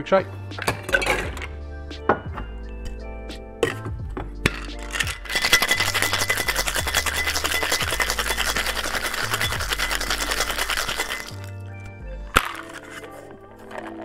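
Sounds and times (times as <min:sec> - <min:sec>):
background music with bass: 0:00.0 - 0:14.0
ice rattling in cocktail shaker: 0:04.4 - 0:11.5, 0:12.4 - 0:14.0.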